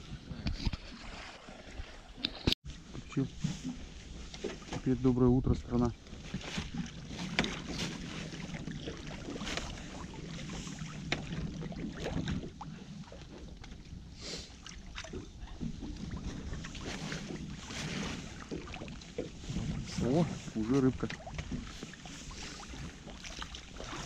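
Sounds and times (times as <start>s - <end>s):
water splashing and dripping: 6.3s - 24.0s.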